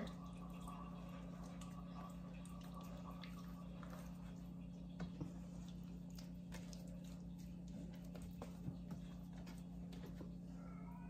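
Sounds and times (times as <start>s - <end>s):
hands squishing dough: 2.5s - 10.6s.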